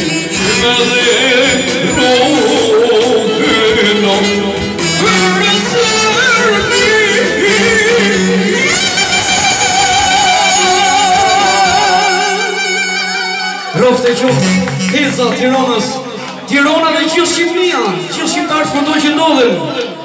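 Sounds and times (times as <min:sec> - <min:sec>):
man singing into microphone: 0:00.0 - 0:15.2
amplified band accompaniment: 0:00.0 - 0:18.3.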